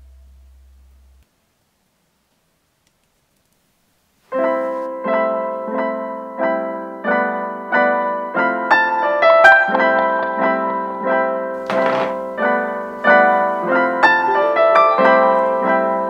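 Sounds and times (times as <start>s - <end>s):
piano music: 4.3s - 16.0s.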